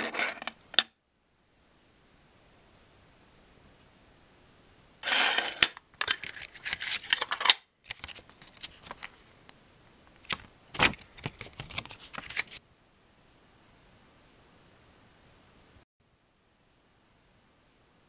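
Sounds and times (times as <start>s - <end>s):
paper crackling and rustling: 7.9s - 9.4s, 10.2s - 12.6s.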